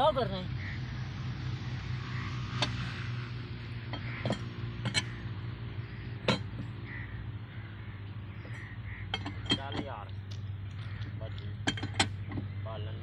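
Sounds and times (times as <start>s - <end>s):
steady low hum: 0.0s - 13.0s
spanner clinking on metal bolts: 2.5s - 2.9s, 3.7s - 5.3s, 6.1s - 6.8s, 8.5s - 10.1s, 10.8s - 12.6s.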